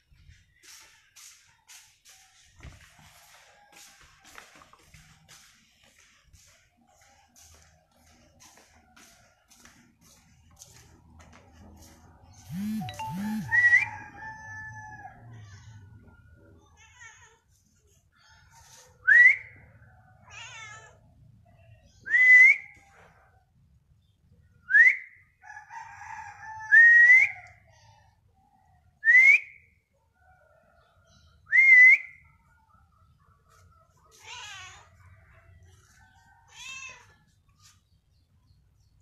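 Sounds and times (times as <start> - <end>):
loud rising whistled notes: 12.6 - 14.0.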